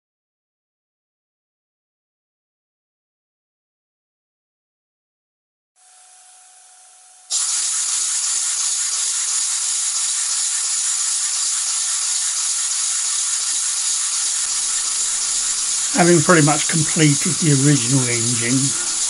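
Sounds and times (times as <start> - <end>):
compressed air hissing: 7.3 - 19.0.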